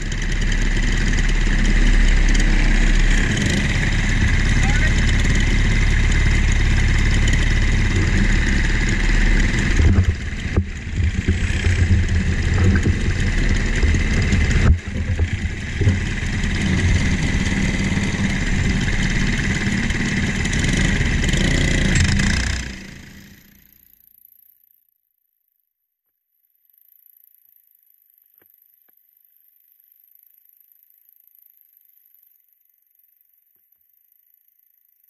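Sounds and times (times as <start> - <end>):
kart engine idling: 0.0 - 23.8.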